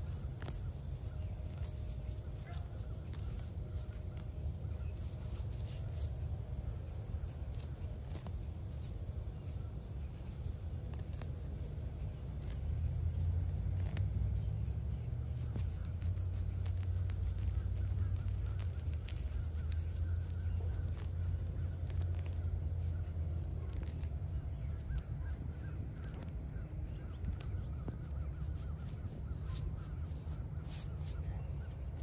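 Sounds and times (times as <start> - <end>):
steady low rumble: 0.0 - 32.0
turf tearing crackles: 0.0 - 32.0.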